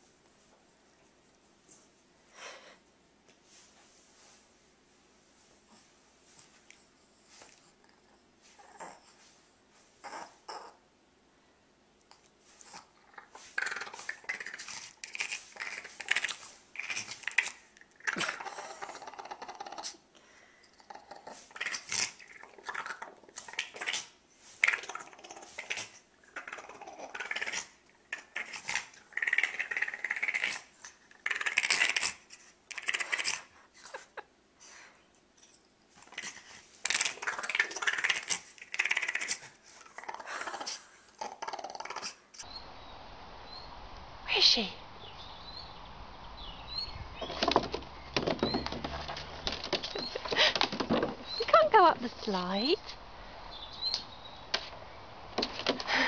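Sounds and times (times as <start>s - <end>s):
dog grunting and whining: 7.9s - 9.2s, 10.0s - 10.8s, 12.6s - 20.0s, 20.7s - 34.2s, 36.0s - 42.6s.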